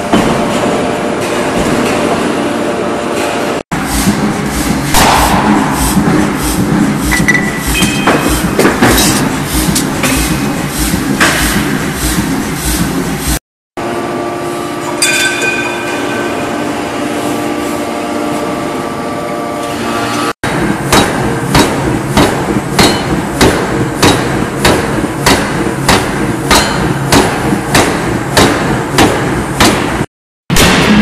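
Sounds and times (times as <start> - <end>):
machine hum: 0.0 - 30.0
power hammer striking metal: 4.0 - 11.8, 14.9 - 17.2, 20.0 - 31.0
ringing metallic clang: 15.0 - 16.9.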